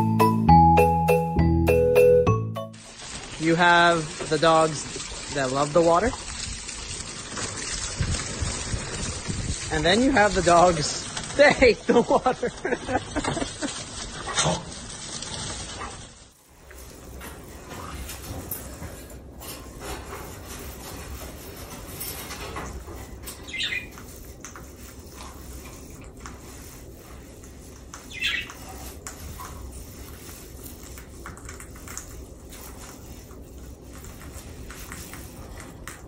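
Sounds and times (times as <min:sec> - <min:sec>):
low steady background noise: 0:09.7 - 0:36.0
parrot squawking: 0:23.5 - 0:23.9, 0:28.1 - 0:28.5.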